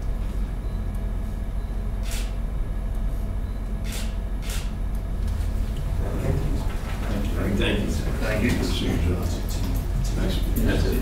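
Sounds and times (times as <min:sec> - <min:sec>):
low room hum: 0:00.0 - 0:11.0
camera shutter clicks: 0:02.0 - 0:02.4, 0:03.9 - 0:04.7.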